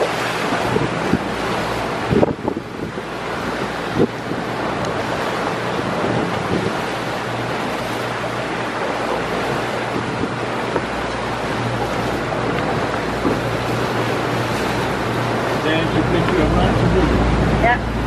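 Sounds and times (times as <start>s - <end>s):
low engine hum: 0.0s - 18.0s
water rushing from motorboat: 0.0s - 18.0s
wind buffeting microphone: 0.0s - 18.0s.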